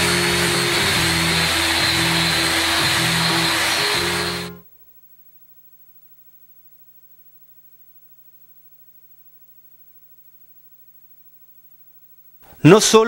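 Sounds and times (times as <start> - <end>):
faint mains hum with hiss: 4.5 - 13.0.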